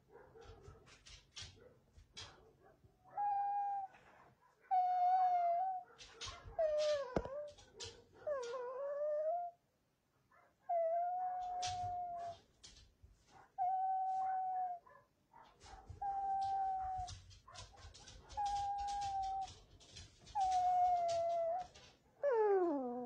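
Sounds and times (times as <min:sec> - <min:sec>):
puppy whining: 0:03.1 - 0:09.6, 0:10.7 - 0:12.8, 0:13.6 - 0:14.8, 0:15.7 - 0:23.0.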